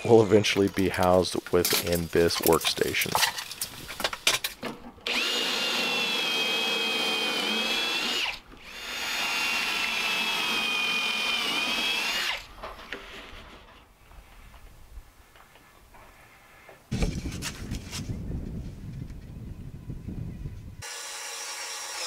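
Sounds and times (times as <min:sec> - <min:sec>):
cordless drill whining: 0:05.0 - 0:13.4, 0:20.8 - 0:22.0.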